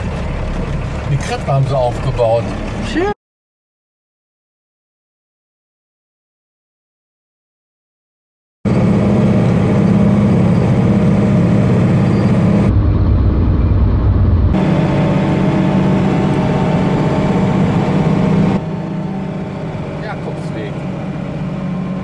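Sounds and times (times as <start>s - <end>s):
diesel engine drone in cab: 0.0s - 3.2s, 8.7s - 22.0s.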